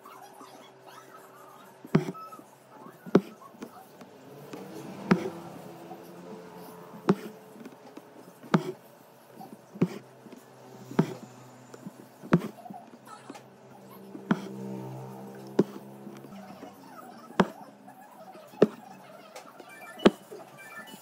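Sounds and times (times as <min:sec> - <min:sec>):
needle tapping through fabric: 0:01.9 - 0:02.2, 0:03.1 - 0:03.8, 0:04.5 - 0:05.4, 0:07.0 - 0:08.8, 0:09.8 - 0:12.6, 0:14.2 - 0:14.5, 0:15.4 - 0:16.6, 0:17.4 - 0:17.6, 0:18.6 - 0:18.8.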